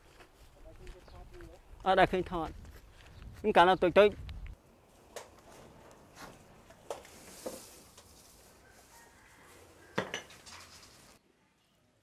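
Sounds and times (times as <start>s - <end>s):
sharp clanks and knocks: 10.0s - 10.6s.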